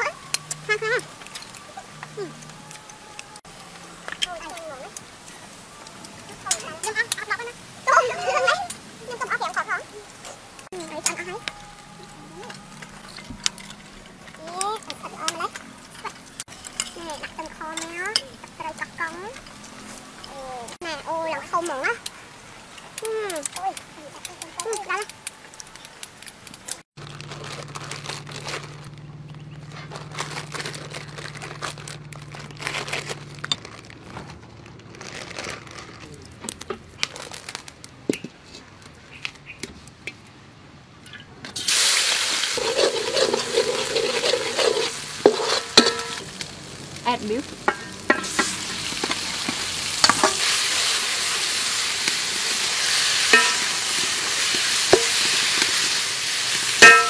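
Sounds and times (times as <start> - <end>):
meat sizzling in a wok: 41.6 - 57.0
spatula scraping a pan: 42.5 - 46.2, 47.7 - 51.8, 52.5 - 56.0.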